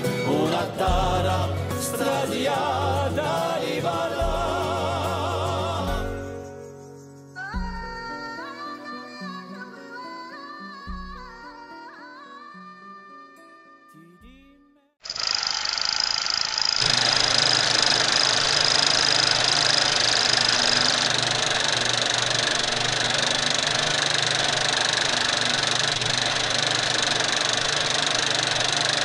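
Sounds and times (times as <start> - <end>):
mechanical running noise: 15.0 - 29.0.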